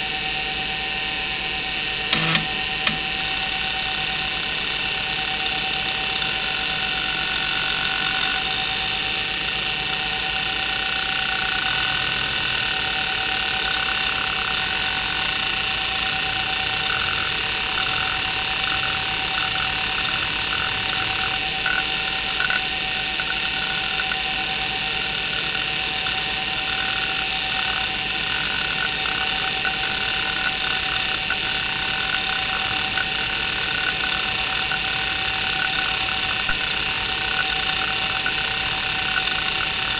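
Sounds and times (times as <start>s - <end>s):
hard drive spindle whine: 0.0s - 39.9s
hard drive heads ticking: 2.1s - 3.7s, 10.4s - 39.9s.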